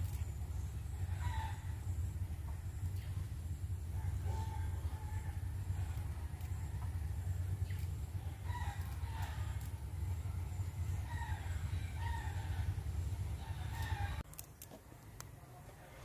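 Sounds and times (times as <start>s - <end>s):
low steady rumble: 0.0s - 16.0s
chickens calling: 0.1s - 14.2s
rooster crowing: 0.9s - 2.0s, 3.8s - 6.1s, 8.2s - 9.8s, 10.9s - 14.2s.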